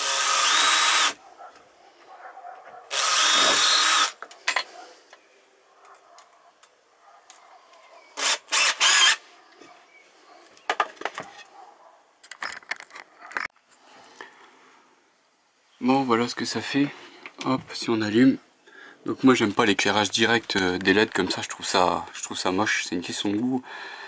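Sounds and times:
wood and tools knocking: 10.6 - 11.4.

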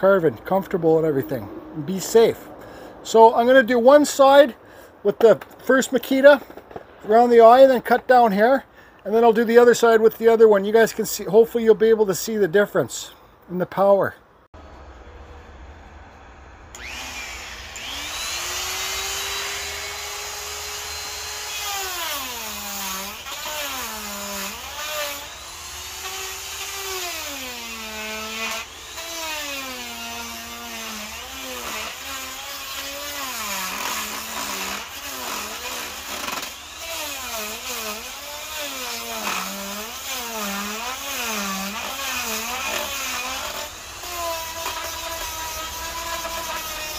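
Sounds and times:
die grinder whining: 16.7 - 46.9
wood being ground hiss: 16.8 - 46.9.

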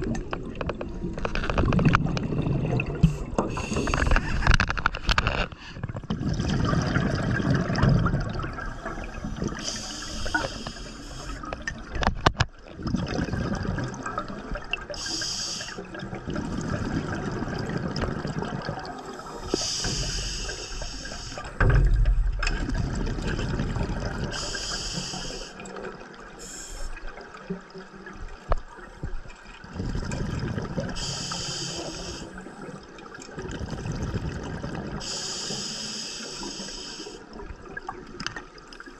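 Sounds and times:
exhaled bubbles rushing: 0.0 - 15.2, 15.8 - 24.8, 27.0 - 35.2
regulator inhale hiss: 3.0 - 4.5, 8.9 - 11.4, 15.0 - 15.9, 19.2 - 21.6, 24.3 - 25.6, 26.4 - 27.0, 31.0 - 32.5, 35.0 - 37.3.

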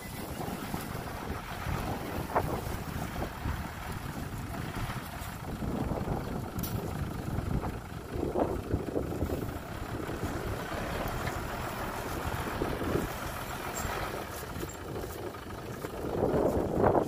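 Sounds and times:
heavy diesel engine running: 0.0 - 17.0.

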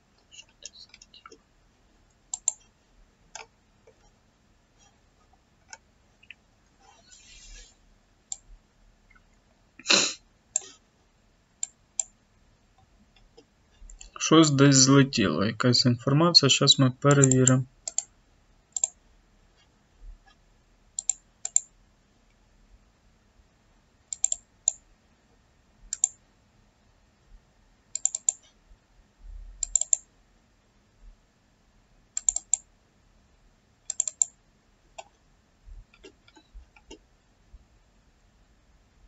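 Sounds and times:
computer mouse clicking: 2.3 - 2.7, 3.3 - 4.2, 8.3 - 8.5, 11.6 - 12.2, 17.2 - 18.1, 18.7 - 19.0, 21.0 - 21.7, 24.1 - 24.8, 25.9 - 26.2, 27.9 - 28.6, 29.6 - 30.1, 32.2 - 32.7, 33.9 - 34.4, 35.0 - 35.2, 35.8 - 37.0.

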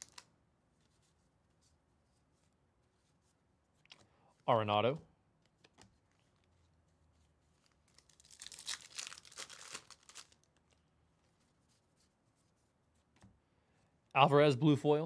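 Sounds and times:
foil wrapper tearing and crinkling: 0.0 - 0.3, 7.6 - 10.7.

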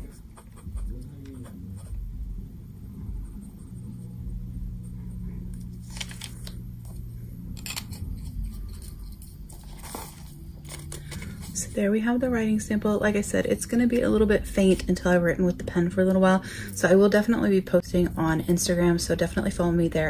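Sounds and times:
fountain pen scratching on paper: 0.0 - 2.0
low hum: 0.0 - 20.0
paper sheet rustling: 5.7 - 6.6, 8.8 - 11.6.

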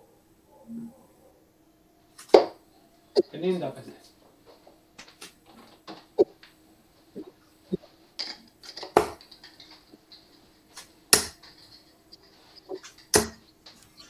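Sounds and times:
darts striking dartboard: 2.3 - 2.6, 11.1 - 11.5, 13.1 - 13.4.

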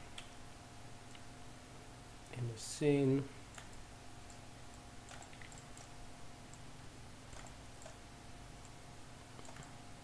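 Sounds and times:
steady faint hum: 0.0 - 10.0
faint computer mouse clicks: 9.4 - 9.8.

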